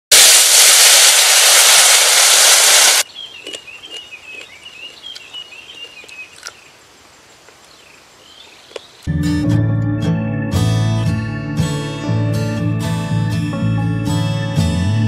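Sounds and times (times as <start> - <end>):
loud steady hiss: 0.1 - 3.1
crunchy chewing: 3.0 - 6.7
bird chirping song: 3.0 - 6.8, 7.6 - 9.1.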